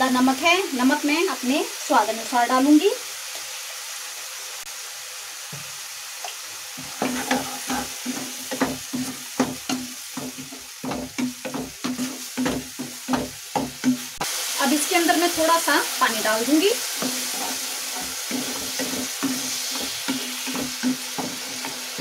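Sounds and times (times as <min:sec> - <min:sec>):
food sizzling in a pan: 0:00.0 - 0:22.0
wooden spatula scraping pan: 0:06.8 - 0:09.6, 0:16.9 - 0:22.0.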